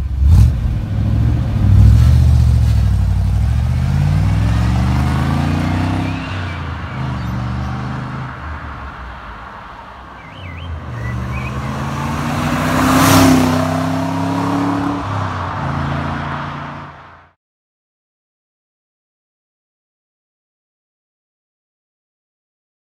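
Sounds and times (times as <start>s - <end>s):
car engine accelerating: 0.0s - 9.4s, 10.2s - 17.3s.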